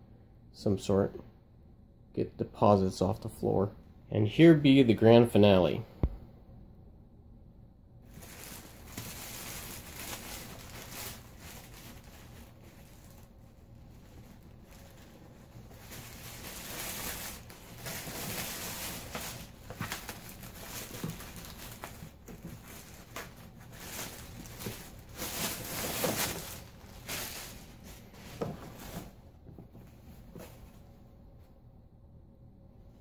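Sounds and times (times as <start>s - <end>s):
plastic bag crinkling: 8.0s - 29.1s.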